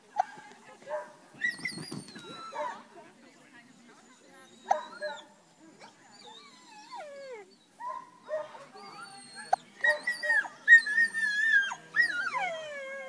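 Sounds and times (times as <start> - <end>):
dog whining: 6.1 - 7.6.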